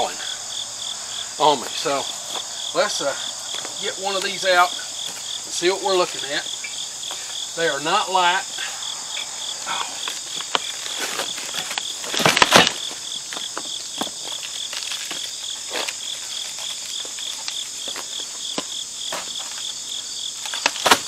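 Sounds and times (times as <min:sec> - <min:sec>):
insects chirping: 0:00.0 - 0:21.0
foam wrapping and cardboard rustling: 0:09.9 - 0:19.8, 0:20.4 - 0:21.0.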